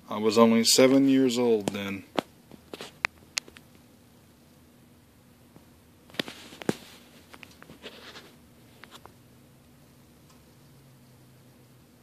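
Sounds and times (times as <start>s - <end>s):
soft taps and rustles: 1.0s - 3.8s, 5.5s - 9.2s.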